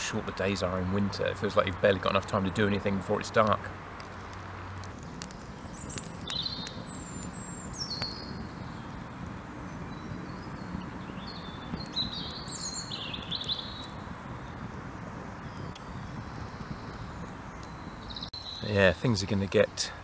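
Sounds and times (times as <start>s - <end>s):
songbird warbling: 5.6s - 9.0s, 9.8s - 14.5s.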